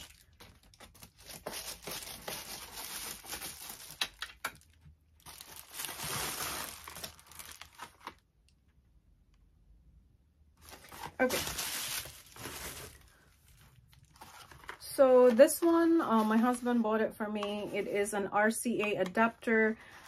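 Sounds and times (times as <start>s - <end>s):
packaging crinkling and tearing: 0.0s - 8.2s, 10.6s - 15.6s.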